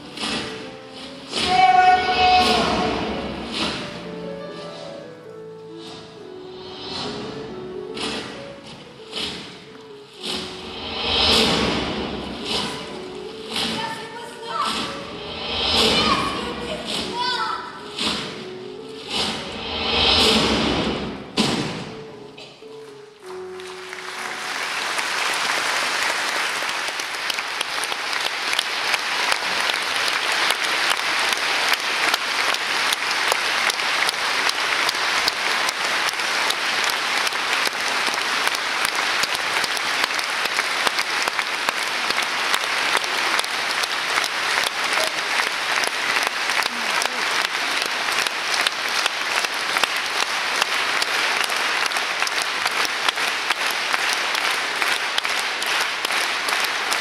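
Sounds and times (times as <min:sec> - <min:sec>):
audience applauding: 0:01.5 - 0:04.1, 0:23.1 - 0:57.0.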